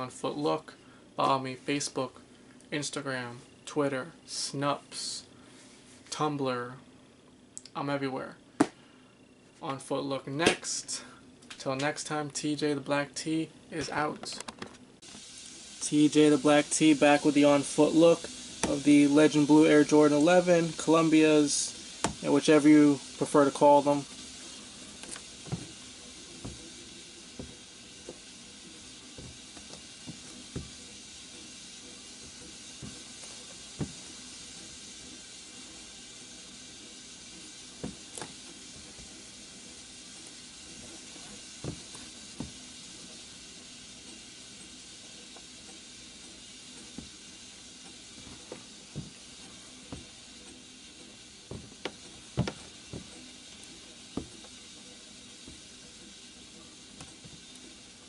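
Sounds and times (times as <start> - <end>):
steam radiator hissing: 0.0 - 6.8, 15.0 - 58.0
sneaker steps on wooden floor: 25.4 - 26.8, 27.4 - 28.3, 29.1 - 30.8, 33.8 - 34.1, 37.8 - 39.2, 41.6 - 42.6, 48.2 - 50.2, 51.5 - 53.3, 54.2 - 54.6.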